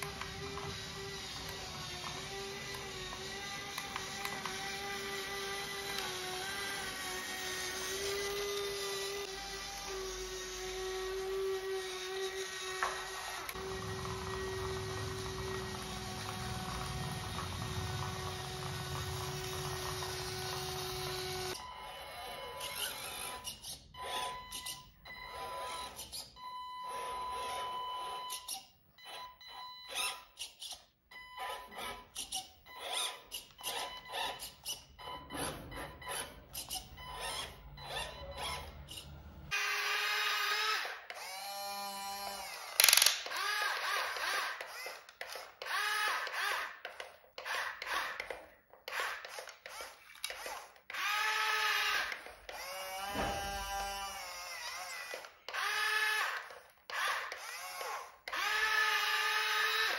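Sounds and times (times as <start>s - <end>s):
small electric motors whining: 0.0s - 59.9s
clicks and gear clatter: 42.8s - 43.4s.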